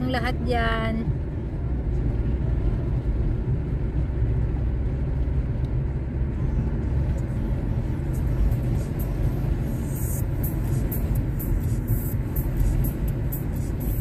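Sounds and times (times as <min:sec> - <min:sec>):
car road and engine noise: 0:00.0 - 0:14.0.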